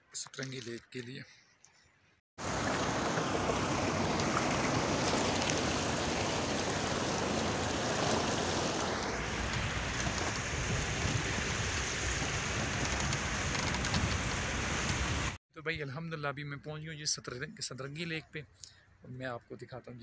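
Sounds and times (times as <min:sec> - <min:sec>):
water splashing around wheels: 0:02.4 - 0:15.4.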